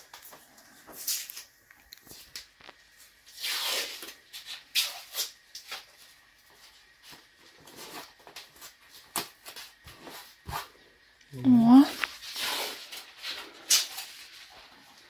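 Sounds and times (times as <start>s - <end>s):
tape ripping off roll: 0.9s - 6.0s, 12.0s - 14.8s
tape tearing and rubbing: 3.2s - 6.1s, 7.0s - 10.7s, 11.9s - 14.8s.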